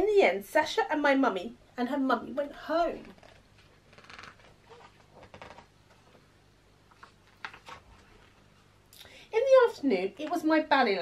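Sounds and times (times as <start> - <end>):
paper pages rustling: 3.0 - 6.2, 6.9 - 8.6.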